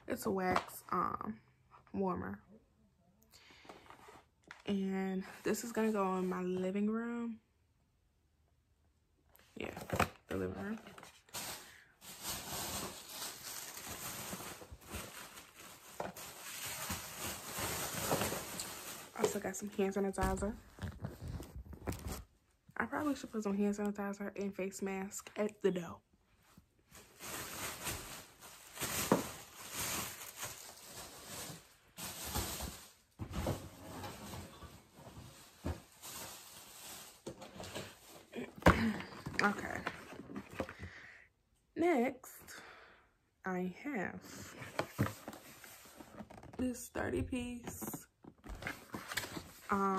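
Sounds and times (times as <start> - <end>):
plastic bag rustling: 10.4 - 22.3, 26.8 - 40.8.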